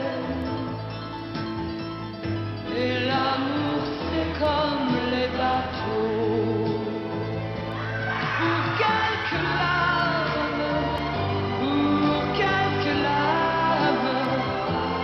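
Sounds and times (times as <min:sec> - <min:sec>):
woman singing pop song: 0:00.0 - 0:00.7, 0:02.7 - 0:06.9, 0:08.2 - 0:15.0
instrumental backing with bass: 0:00.0 - 0:15.0.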